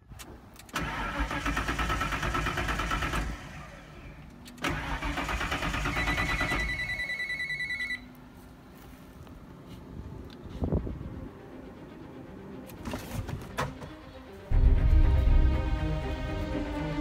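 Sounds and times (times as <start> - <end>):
starter motor cranking engine: 0.6 - 6.9
high-pitched warning tone: 6.0 - 8.1.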